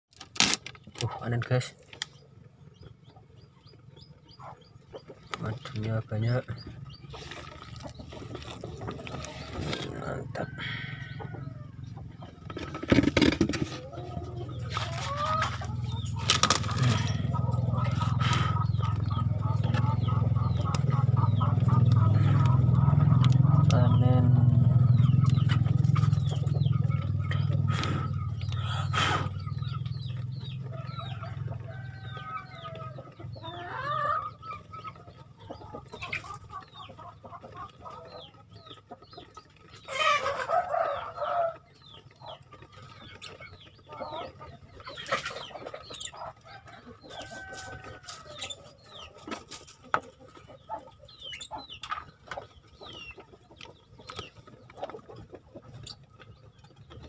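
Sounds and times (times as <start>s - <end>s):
chickens clucking: 0.3s - 57.0s
drawn-out chicken call: 2.2s - 57.0s.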